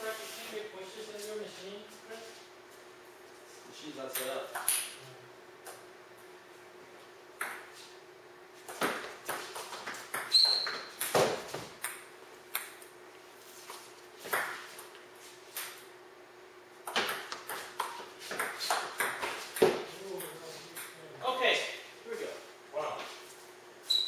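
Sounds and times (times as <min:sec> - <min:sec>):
table tennis ball hits: 0:07.4 - 0:07.7, 0:08.7 - 0:12.8, 0:14.2 - 0:14.6, 0:16.9 - 0:19.9
high squeak: 0:10.3 - 0:10.9.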